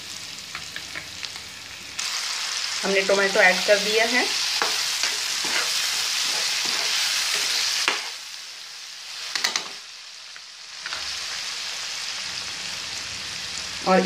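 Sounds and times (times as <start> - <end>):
food sizzling in a pan: 0.0 - 14.0
spatula scraping a pan: 4.3 - 8.2.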